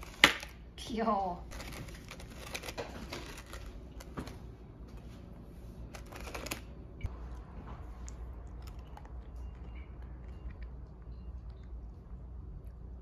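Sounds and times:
plastic container crackling: 1.5s - 4.3s.

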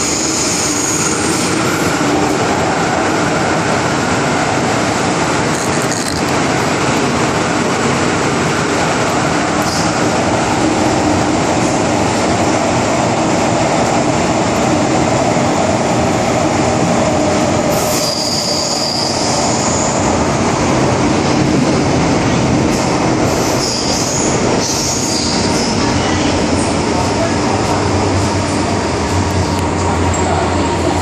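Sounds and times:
train wheels rumbling on track: 0.0s - 31.0s
high wheel squeals: 17.8s - 20.0s.

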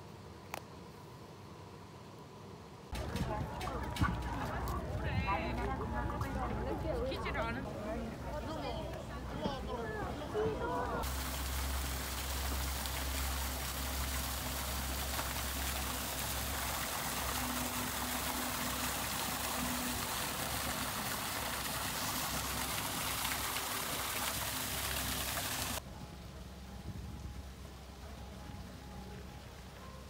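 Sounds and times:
fountain water splashing into pond: 11.0s - 25.8s.

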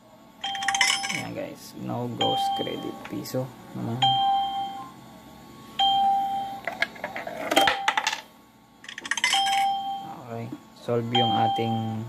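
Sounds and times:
coin dropping with metallic clicks: 0.4s - 1.4s, 6.6s - 9.8s
electronic beep: 11.2s - 12.0s.

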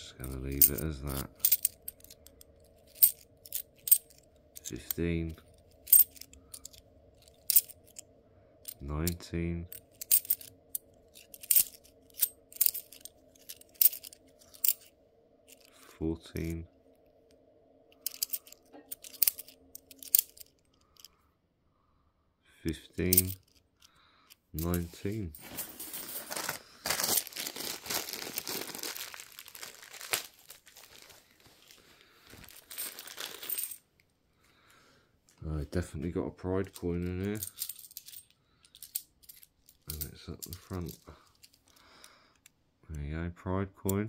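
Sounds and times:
coins clinking and scraping: 0.2s - 8.0s, 9.7s - 14.9s, 15.5s - 16.5s, 18.0s - 21.1s, 23.0s - 23.6s, 24.6s - 33.8s, 36.6s - 42.1s
plastic bag crinkling: 25.4s - 33.8s.

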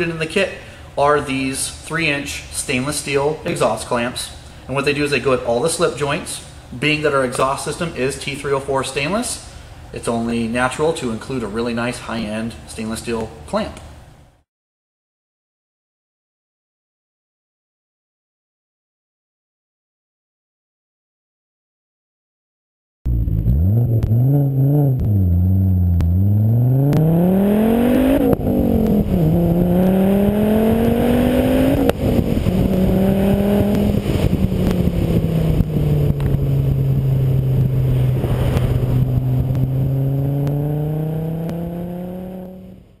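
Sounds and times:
car engine and exhaust while driving: 23.1s - 43.0s.

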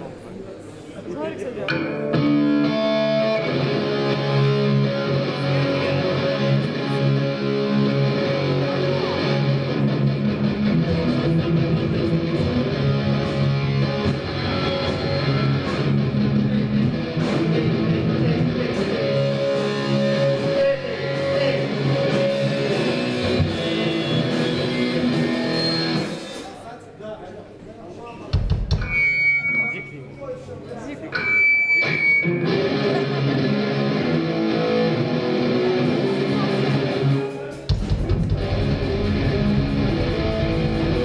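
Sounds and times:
electric guitar through amplifier: 1.7s - 26.4s, 31.1s - 41.0s.

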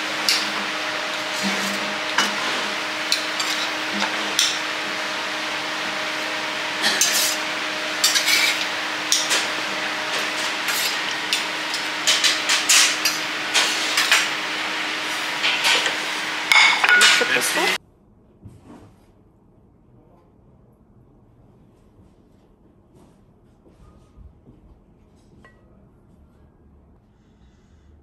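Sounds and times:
metal spatula scraping a griddle: 0.1s - 17.5s.

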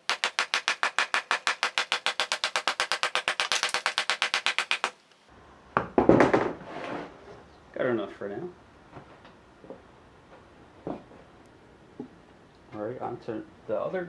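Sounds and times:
loud knock and clatter: 5.8s - 6.6s.

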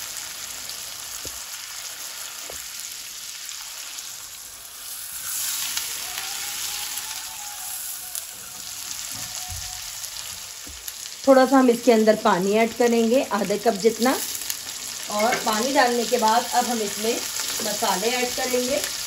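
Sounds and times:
meat sizzling in a wok: 0.0s - 19.0s.

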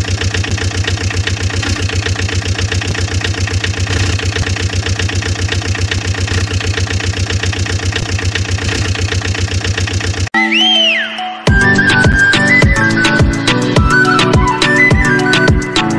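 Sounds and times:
engine idling: 0.0s - 10.3s, 11.6s - 15.9s.

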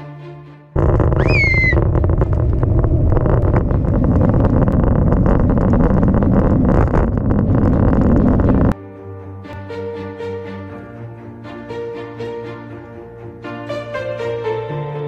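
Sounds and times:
bike rattling over rough road: 0.8s - 8.8s
wind buffeting microphone: 0.8s - 8.8s.

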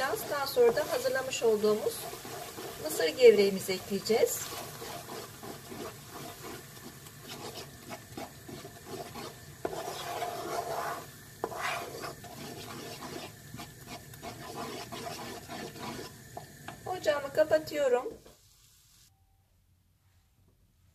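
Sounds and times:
wooden spoon scraping a pan: 0.0s - 16.9s.

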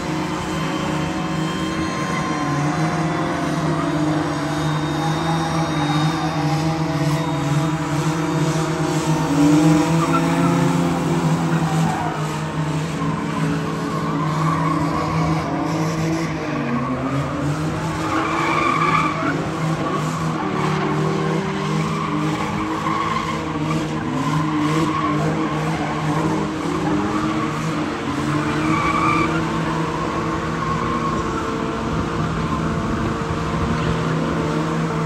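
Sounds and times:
tyres squealing on tarmac: 0.0s - 31.8s
car engines revving: 0.0s - 35.0s.

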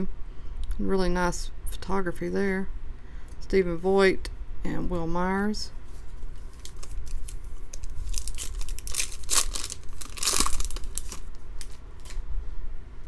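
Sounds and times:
foil wrapper crinkling and ripping: 6.4s - 12.2s.

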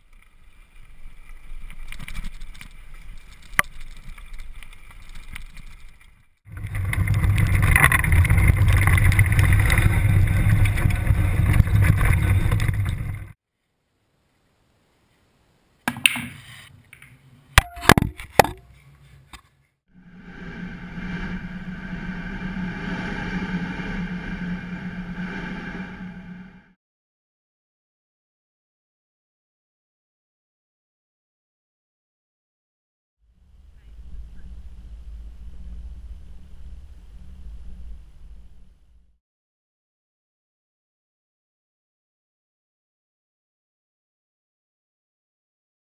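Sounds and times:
loud steady rushing noise: 20.0s - 26.7s
low steady hum: 20.0s - 26.7s, 33.3s - 39.2s.

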